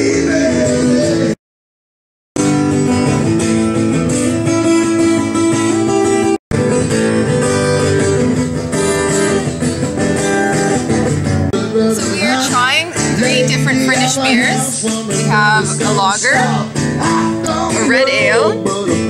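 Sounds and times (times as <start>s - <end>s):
plucked and strummed guitar music: 2.4s - 19.0s.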